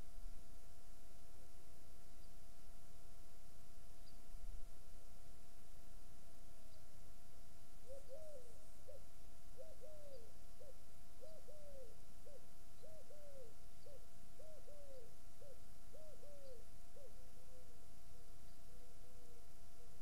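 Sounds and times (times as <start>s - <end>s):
pigeon cooing: 7.9s - 9.0s, 9.6s - 17.7s.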